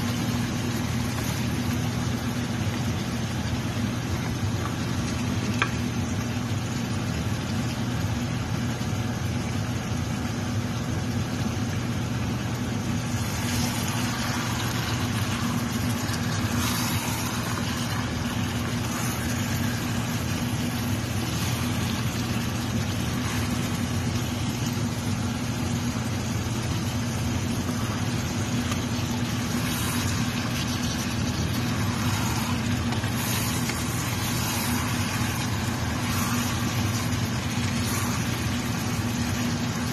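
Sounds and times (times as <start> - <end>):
low machine hum: 0.0 - 39.9
wooden spoon scraping a pot: 13.1 - 24.3, 28.7 - 39.6
even hiss: 27.4 - 39.9.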